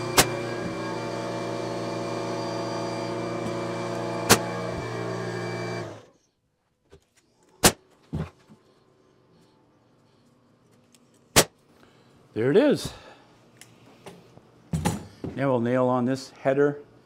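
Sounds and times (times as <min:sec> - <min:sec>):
pneumatic nail gun firing: 0:00.0 - 0:00.8, 0:03.3 - 0:06.1
air compressor motor humming: 0:00.0 - 0:06.1.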